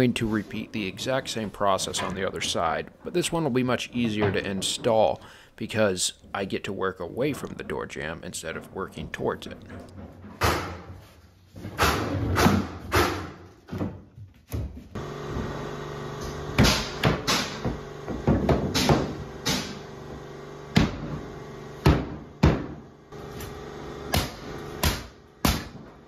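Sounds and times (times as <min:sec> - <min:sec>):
steady hum: 0:15.0 - 0:26.0.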